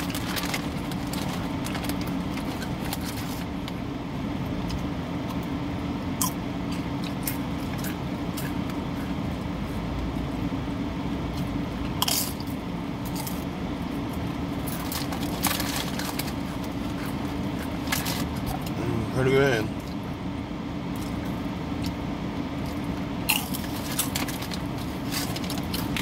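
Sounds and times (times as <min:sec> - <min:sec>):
chips being chewed: 0:00.0 - 0:03.7, 0:14.1 - 0:18.8, 0:22.6 - 0:26.0.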